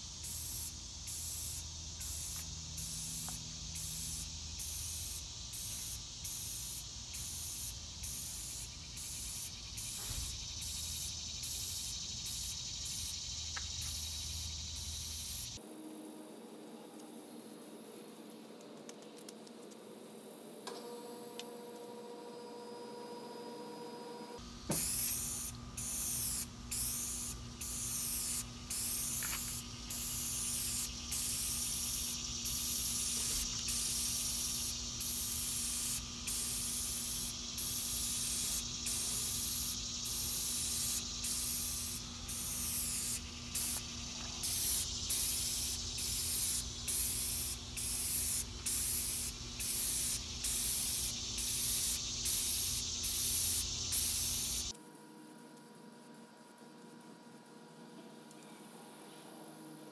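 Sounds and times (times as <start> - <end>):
spray paint can hissing: 0.0 - 15.6, 24.7 - 54.7.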